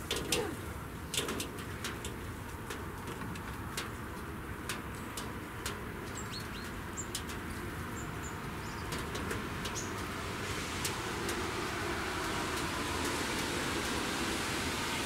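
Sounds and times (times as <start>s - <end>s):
small birds chirping: 6.0s - 9.0s, 9.6s - 10.1s.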